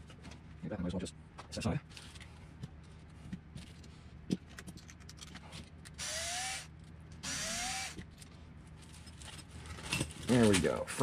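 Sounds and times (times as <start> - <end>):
cordless screwdriver motor whine: 6.0 - 8.0.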